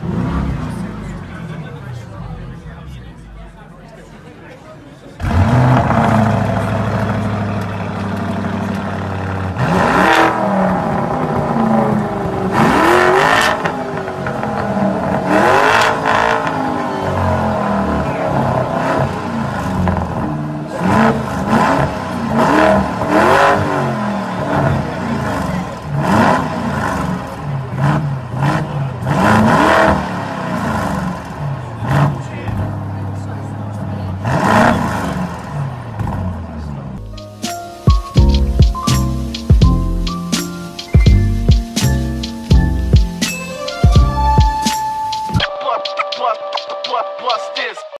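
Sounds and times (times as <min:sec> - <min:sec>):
car engine idling and revving: 0:00.0 - 0:45.4.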